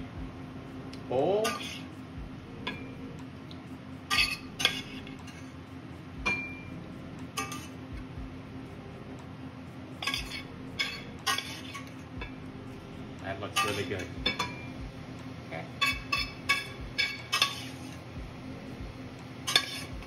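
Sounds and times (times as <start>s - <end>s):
low hum: 0.0s - 20.0s
metal spoon scraping a pan: 1.4s - 1.9s, 4.1s - 5.6s, 7.3s - 7.8s, 10.0s - 12.4s, 13.4s - 14.7s, 15.8s - 18.0s, 19.4s - 20.0s.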